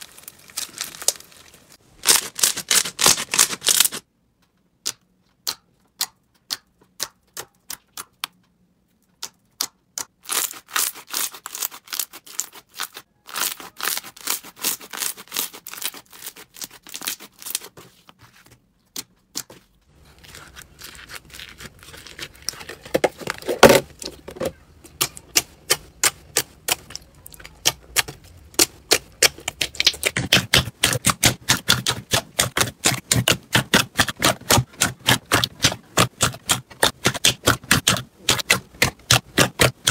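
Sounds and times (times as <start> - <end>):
slime popping and crackling: 24.9 - 39.9.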